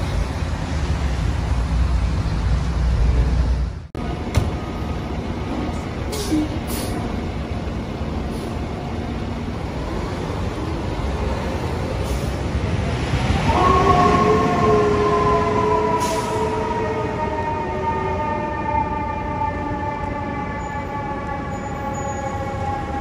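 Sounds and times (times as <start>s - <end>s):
fire engine diesel rumbling: 0.0s - 23.0s.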